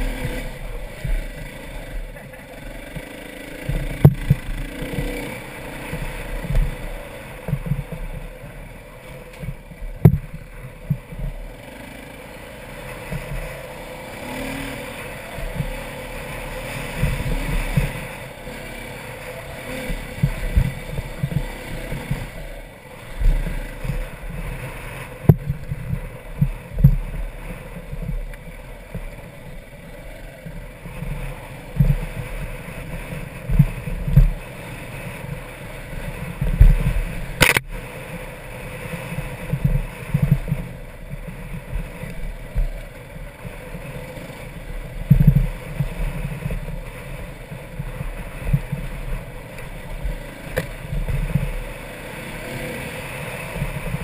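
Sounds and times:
dirt bike engine: 0.0s - 54.0s
thumps from rough ground: 2.0s - 5.2s, 5.8s - 11.5s, 25.1s - 29.1s, 33.3s - 34.4s, 36.3s - 37.8s, 45.0s - 46.8s, 47.6s - 51.6s
sharp click: 37.4s - 37.7s.

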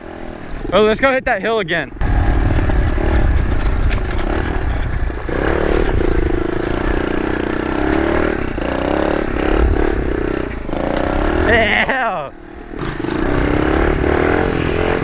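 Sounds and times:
bike knocking and rattling: 2.0s - 9.5s
motorbike engine under throttle: 2.0s - 11.9s, 12.8s - 15.0s.

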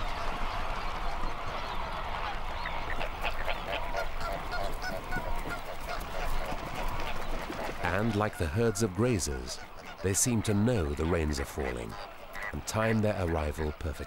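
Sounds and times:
flamingos honking chatter: 0.1s - 14.0s.

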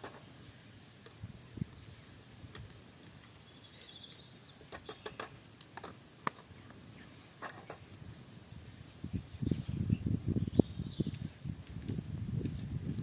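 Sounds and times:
faint outdoor ambience: 0.0s - 13.0s
light clicks and crackles: 0.0s - 13.0s
bird chirps: 3.2s - 6.0s.

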